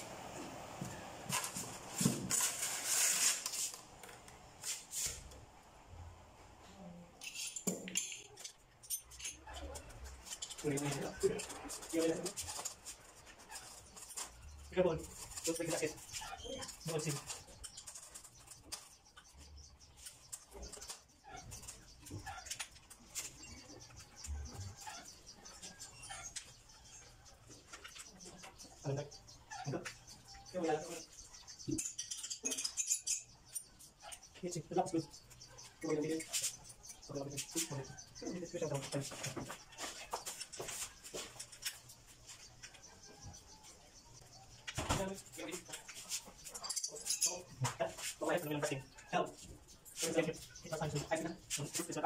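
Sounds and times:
scraping on foam packing: 1.3s - 3.9s.

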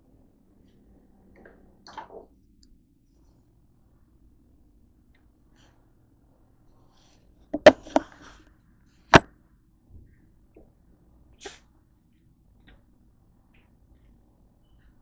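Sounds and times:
objects knocking on a table: 7.6s - 8.1s.

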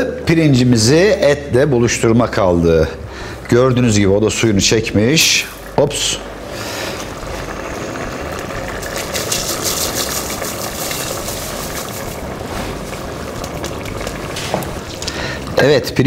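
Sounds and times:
steady rushing hiss: 5.2s - 15.8s
rice pattering into liquid: 6.7s - 16.0s.

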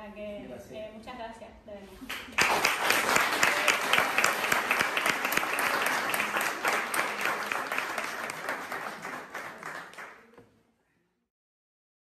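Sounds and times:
audience applause: 2.1s - 10.3s.

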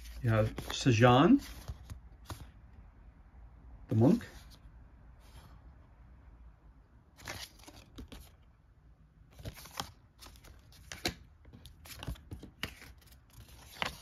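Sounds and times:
cards rustling and clicking: 0.0s - 2.6s, 7.2s - 8.5s, 9.3s - 14.0s.

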